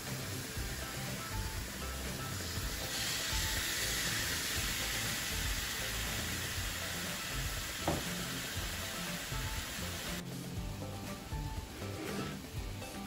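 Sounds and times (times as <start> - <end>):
chicken sizzling on grill pan: 0.0 - 10.2
background music: 0.0 - 13.0.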